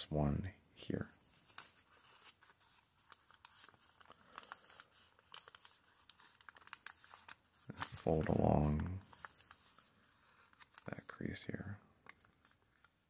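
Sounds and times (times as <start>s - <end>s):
paper crinkling and creasing: 1.0s - 13.0s.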